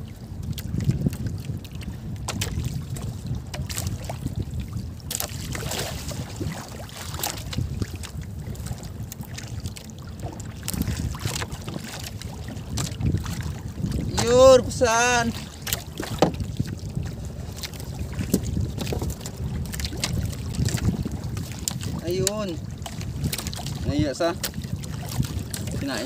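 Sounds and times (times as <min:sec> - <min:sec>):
water lapping against boat: 0:00.0 - 0:26.0
wind buffeting microphone: 0:00.0 - 0:26.0.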